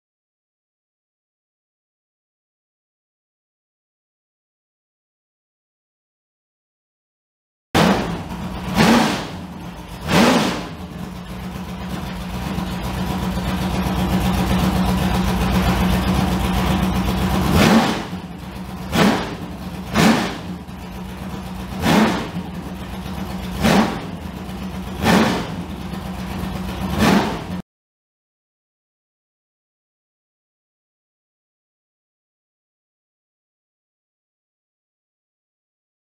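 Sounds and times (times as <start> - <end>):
race car engine revving and idling: 7.8 - 27.6.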